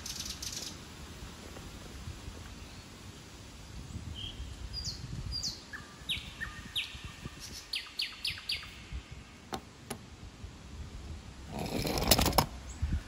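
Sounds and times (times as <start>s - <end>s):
songbird chirping: 0.0s - 0.8s, 2.4s - 3.1s, 3.8s - 10.0s.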